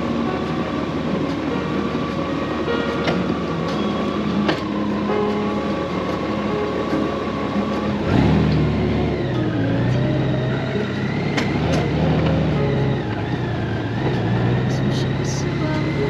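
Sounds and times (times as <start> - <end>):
motorcycle engine pulling away: 3.3 - 16.0.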